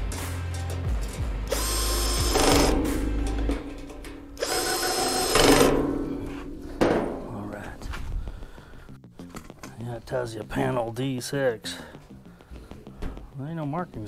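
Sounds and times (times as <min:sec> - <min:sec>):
power drill motor whining: 0:01.5 - 0:02.8, 0:04.4 - 0:05.8.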